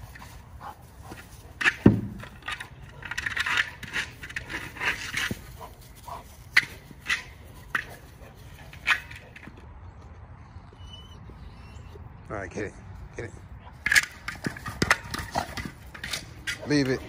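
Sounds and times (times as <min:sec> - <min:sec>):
ball scraping and crunching on grass: 0:00.0 - 0:09.6.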